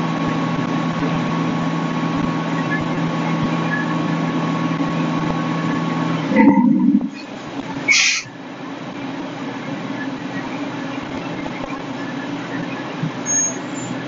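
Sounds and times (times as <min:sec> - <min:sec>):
fire engine motors running: 0:00.0 - 0:14.0
brief high hiss: 0:07.9 - 0:08.3.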